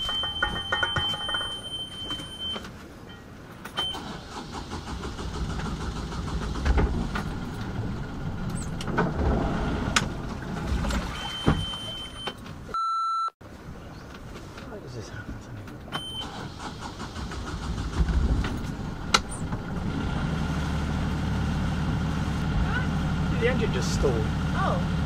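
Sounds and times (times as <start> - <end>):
loud beep: 0.0 - 2.6, 11.1 - 13.3
rumbling gusty low noise: 4.6 - 11.0, 17.0 - 25.0
boat engine running: 17.9 - 25.0.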